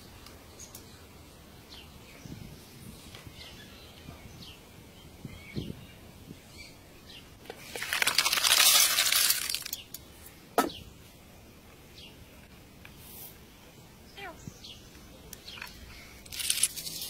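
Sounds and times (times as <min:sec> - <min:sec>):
birds chirping faintly: 0:00.0 - 0:17.0
snail shells clattering: 0:07.5 - 0:10.1, 0:15.6 - 0:17.0
sharp knock: 0:10.6 - 0:10.8.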